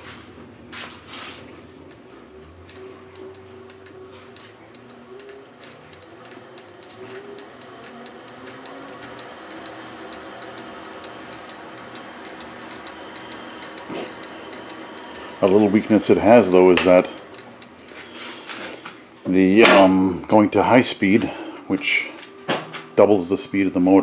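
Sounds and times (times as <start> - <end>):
faint motor hum: 0.0 - 24.0
lathe mechanical ticking: 1.4 - 18.1.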